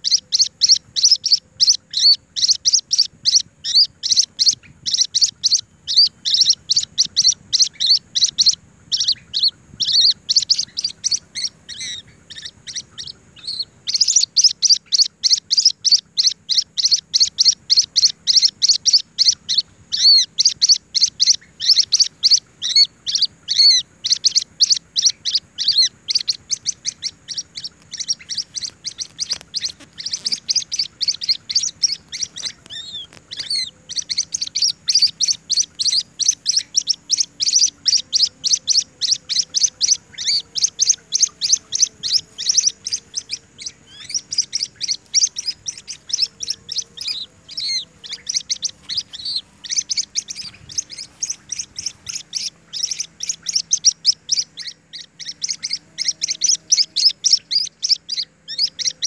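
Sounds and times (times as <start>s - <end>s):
chick chirping rapidly: 0.0s - 59.0s.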